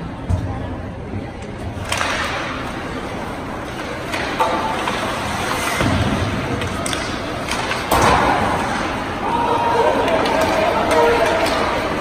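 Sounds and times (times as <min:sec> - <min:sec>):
arena noise: 0:00.0 - 0:12.0
hockey sticks and puck knocking: 0:01.8 - 0:02.8, 0:03.6 - 0:09.0, 0:10.0 - 0:12.0.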